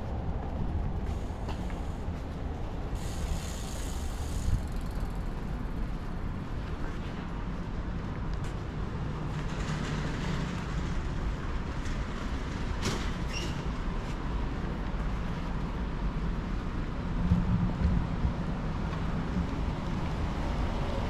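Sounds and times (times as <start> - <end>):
passing train rumble: 0.0 - 21.0
brief high squeak: 13.2 - 13.7.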